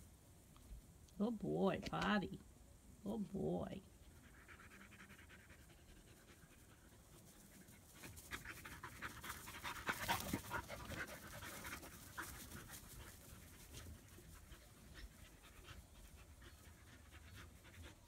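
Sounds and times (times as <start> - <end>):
puppy panting: 4.0 - 18.0.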